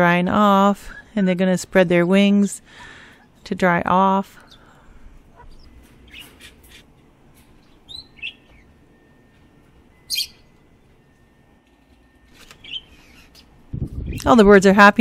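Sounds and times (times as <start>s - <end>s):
birds chirping and calling: 2.6s - 3.4s, 4.3s - 10.6s, 12.4s - 14.5s.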